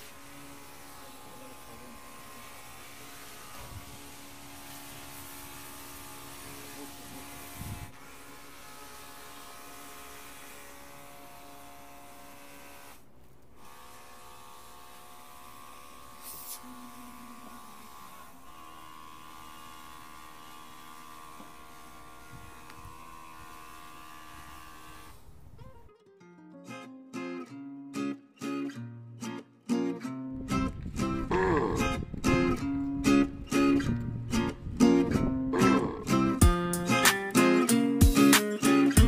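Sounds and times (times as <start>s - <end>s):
electric pump motor buzzing: 0.0s - 13.0s, 13.6s - 25.4s
water spray hissing: 16.1s - 17.8s.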